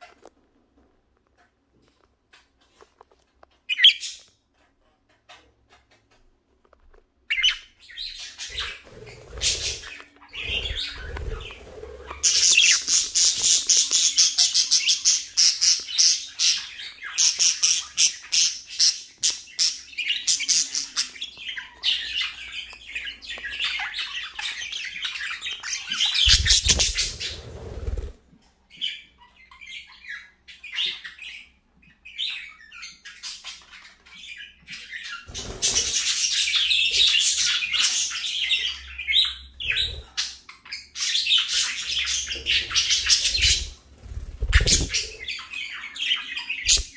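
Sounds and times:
budgerigars chattering: 0:07.3 - 0:27.5.

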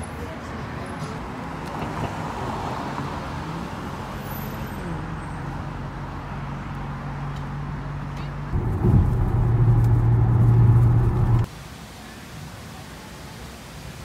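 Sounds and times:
cars passing: 0:00.9 - 0:11.5.

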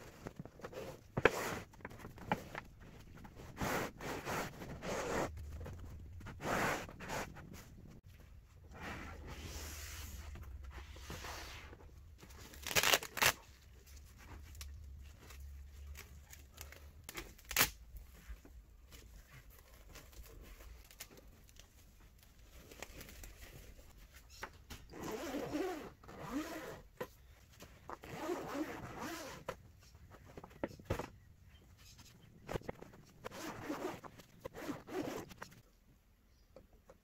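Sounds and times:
zip rasping open: 0:03.5 - 0:05.8, 0:24.9 - 0:26.9, 0:28.0 - 0:29.5, 0:33.2 - 0:35.6
cloth rustling: 0:10.1 - 0:24.3.

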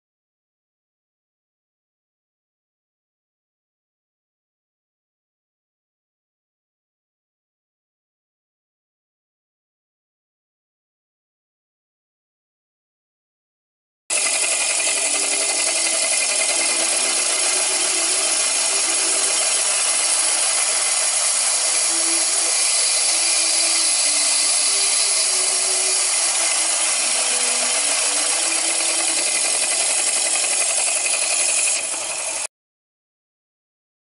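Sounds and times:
model steam engine hissing: 0:14.1 - 0:32.5.

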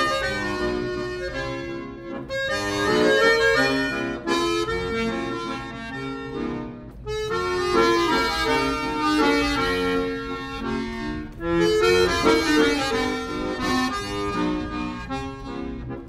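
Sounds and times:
instrumental background music: 0:00.0 - 0:16.0.

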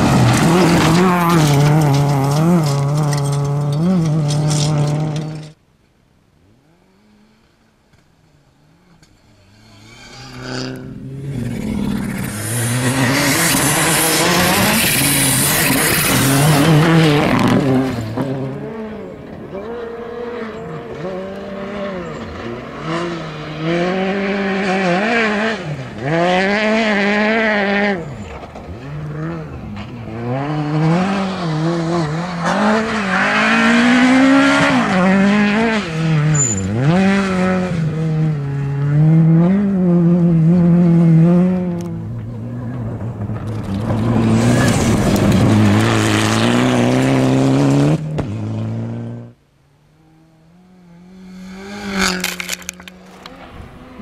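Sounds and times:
tyres scrabbling on gravel: 0:00.0 - 0:05.2, 0:52.0 - 0:53.5
rally car engines revving: 0:00.0 - 0:05.6, 0:06.4 - 0:54.0.

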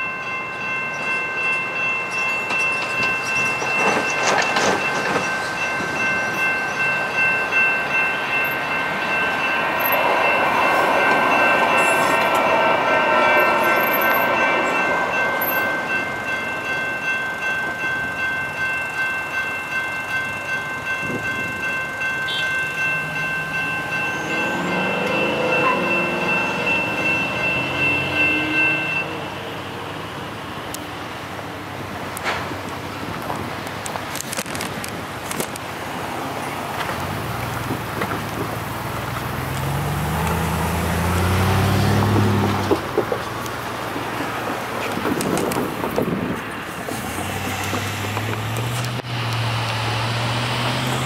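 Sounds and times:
light rail train passing: 0:00.0 - 0:51.0
railroad crossing bells: 0:00.0 - 0:51.0
car driving across: 0:36.9 - 0:43.4.

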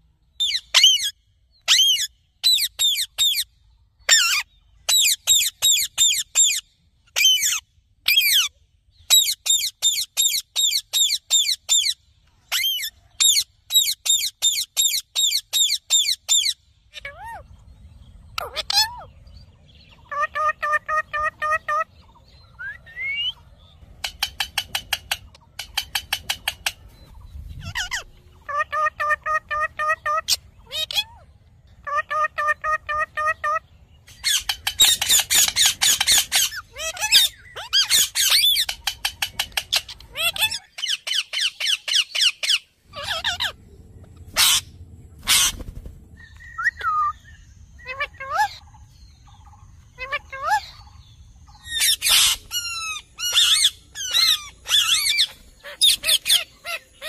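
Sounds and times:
parakeet whistled calls: 0:00.4 - 0:03.5, 0:22.6 - 0:23.4, 0:32.0 - 0:43.6, 0:44.3 - 0:45.6, 0:46.2 - 0:48.6, 0:51.5 - 0:56.9
parakeets calling: 0:00.4 - 0:17.5, 0:18.1 - 0:57.0
parakeet harsh screeches: 0:44.4 - 0:45.6, 0:51.8 - 0:56.8.

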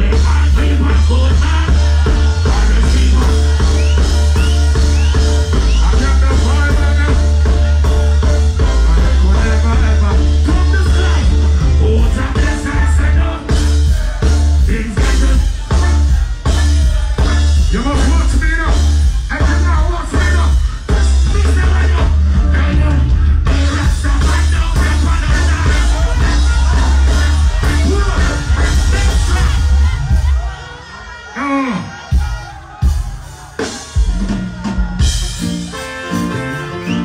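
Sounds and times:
person singing: 0:00.0 - 0:07.6, 0:08.7 - 0:30.5
heavy bass line: 0:00.0 - 0:30.8
drums: 0:00.0 - 0:37.0
reggae band playing: 0:00.0 - 0:37.0.

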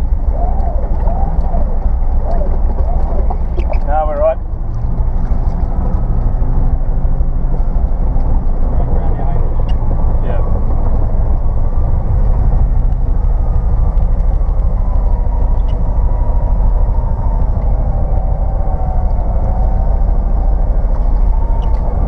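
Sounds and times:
car engine rumbling: 0:00.0 - 0:22.0
faint whine: 0:00.0 - 0:22.0.

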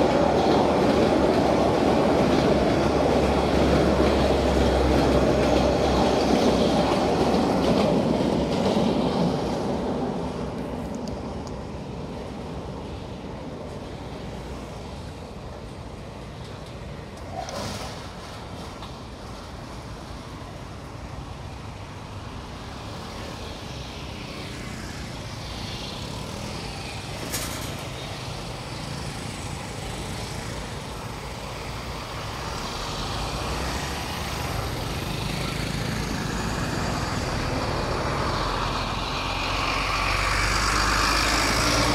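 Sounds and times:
motorbikes passing: 0:22.4 - 0:41.9.

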